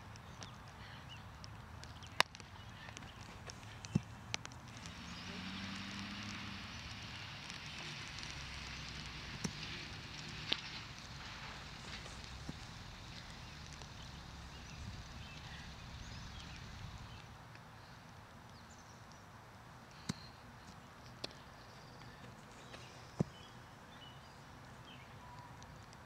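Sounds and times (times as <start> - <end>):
faint bird chirps: 19.9 - 20.7, 21.3 - 25.9.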